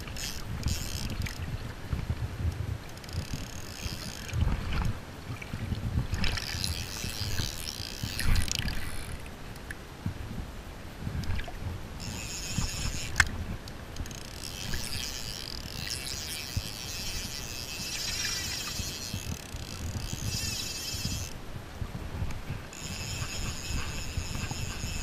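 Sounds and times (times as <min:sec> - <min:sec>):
river water lapping: 0:02.9 - 0:09.4, 0:11.2 - 0:21.4, 0:22.4 - 0:25.0.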